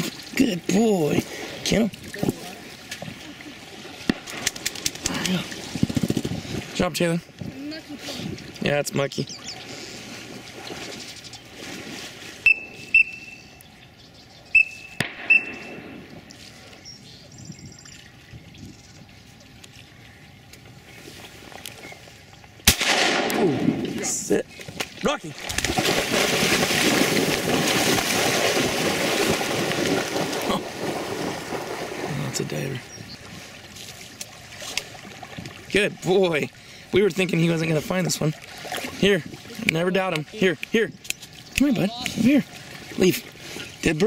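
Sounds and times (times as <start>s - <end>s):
water sloshing from wading: 9.2s - 13.4s, 15.3s - 22.6s, 23.5s - 44.0s
dog splashing through water: 24.9s - 32.3s.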